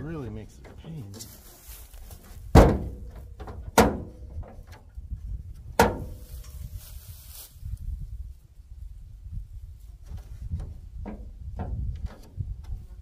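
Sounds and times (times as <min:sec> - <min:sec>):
heavy metallic thunks of hood: 0:02.3 - 0:04.7, 0:05.7 - 0:06.2.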